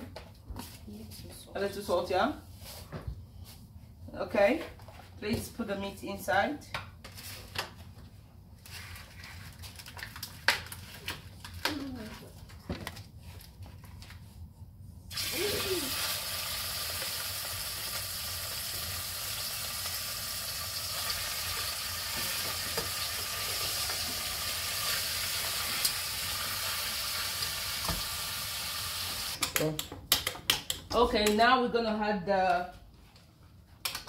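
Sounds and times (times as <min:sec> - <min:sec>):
meat sizzling in hot oil: 0:15.1 - 0:29.4.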